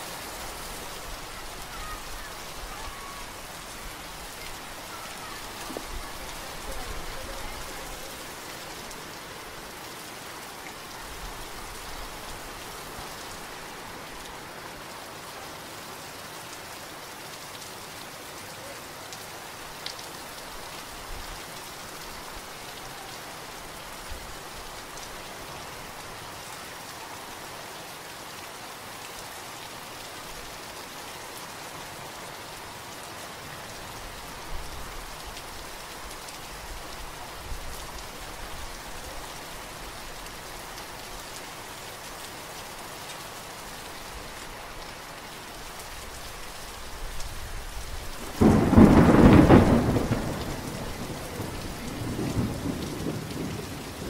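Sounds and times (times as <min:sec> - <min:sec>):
steady rain: 0:00.0 - 0:54.0
thunder clap rumbling: 0:48.3 - 0:54.0.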